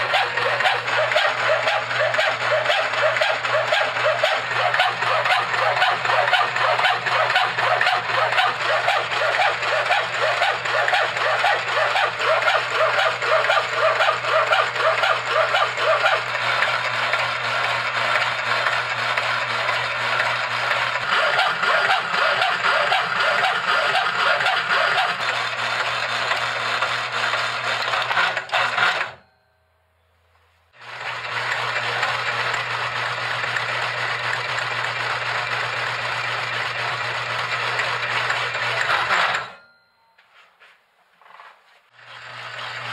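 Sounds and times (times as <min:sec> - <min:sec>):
electric motor humming: 0:00.0 - 0:28.2
hacksaw blade rasping through metal: 0:21.0 - 0:25.5.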